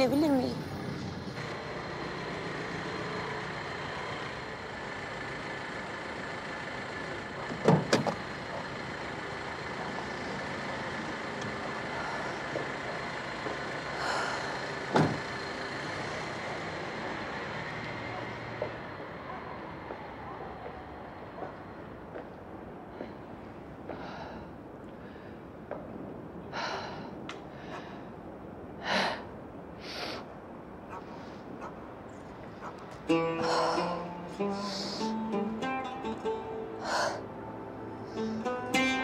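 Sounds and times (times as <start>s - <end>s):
car engine idling: 1.6s - 20.1s.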